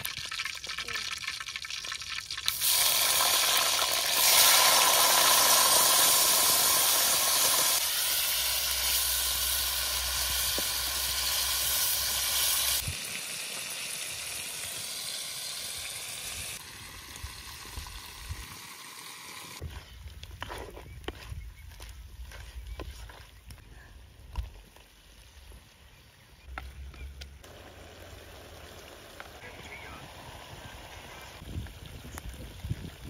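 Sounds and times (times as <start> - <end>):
meat sizzling in hot oil: 0.0 - 19.6.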